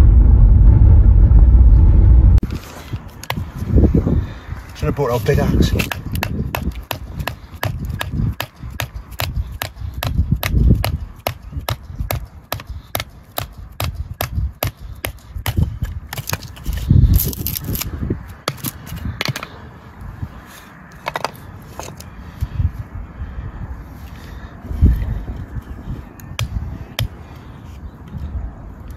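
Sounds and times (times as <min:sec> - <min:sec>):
sharp wooden knocks: 0:05.8 - 0:16.5.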